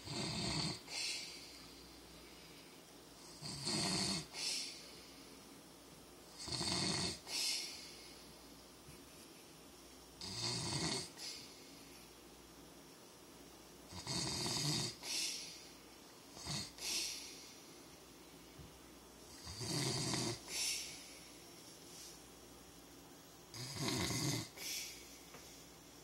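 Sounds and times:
man snoring: 0.0s - 1.3s, 3.2s - 4.7s, 6.3s - 7.4s, 10.2s - 11.3s, 13.9s - 15.1s, 16.4s - 16.8s, 19.3s - 20.6s, 23.5s - 24.7s.

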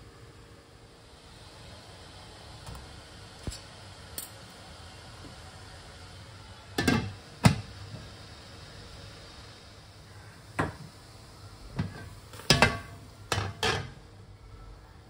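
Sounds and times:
steaming water hissing: 0.0s - 15.0s
wok lid clattering: 11.8s - 14.0s.

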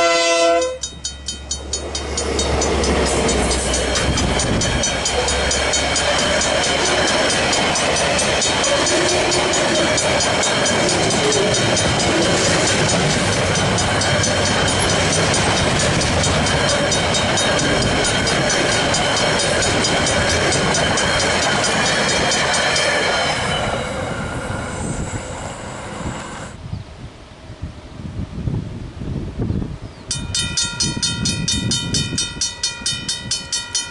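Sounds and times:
freight train rumbling past: 0.0s - 26.8s, 27.4s - 33.9s
level-crossing bells ringing: 30.1s - 33.9s.

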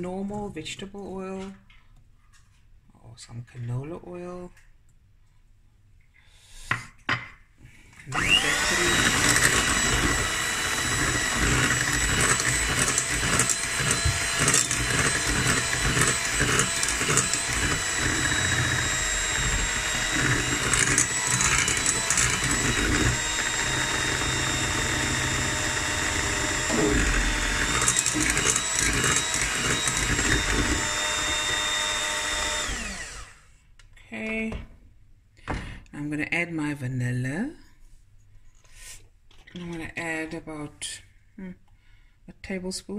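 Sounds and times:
electric hand mixer whining: 8.0s - 33.5s.

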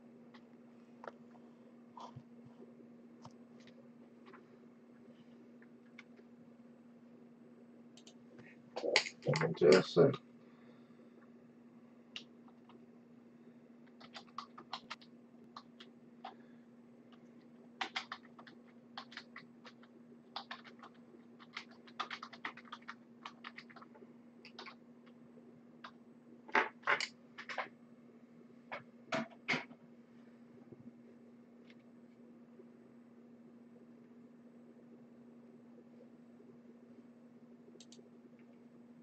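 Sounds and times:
steady low hum: 0.0s - 39.0s
keyboard typing clicks: 13.9s - 16.4s, 17.8s - 24.8s, 37.8s - 38.0s.

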